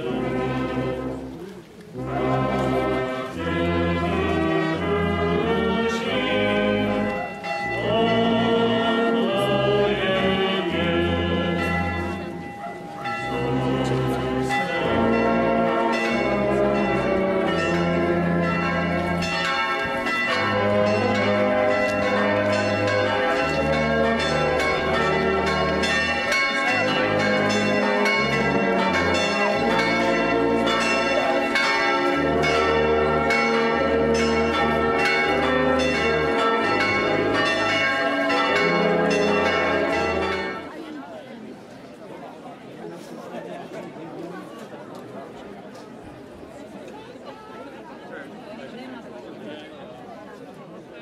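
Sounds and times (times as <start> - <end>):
church bells ringing: 0.0 - 1.4, 2.0 - 40.9.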